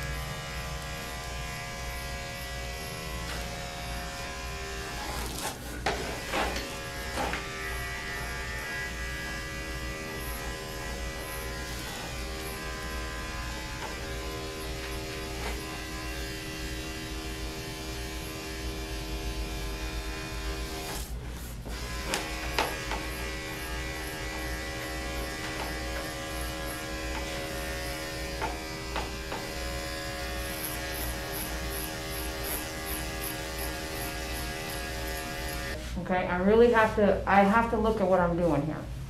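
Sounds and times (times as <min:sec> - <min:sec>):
electric clipper motor buzz: 0:00.0 - 0:35.8.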